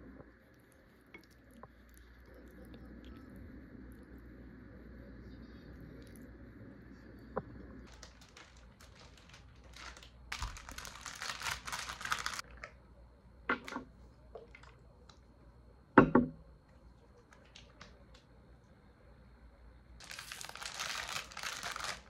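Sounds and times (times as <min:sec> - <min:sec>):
knock: 0:16.0 - 0:16.4.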